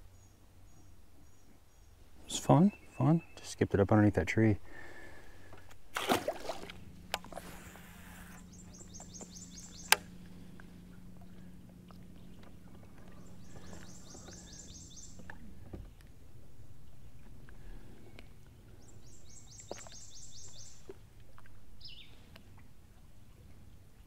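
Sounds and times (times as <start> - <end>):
steady low hum: 0.0 - 24.0
fish splashing into water: 5.9 - 6.8
fishing rod cast: 5.9 - 8.4.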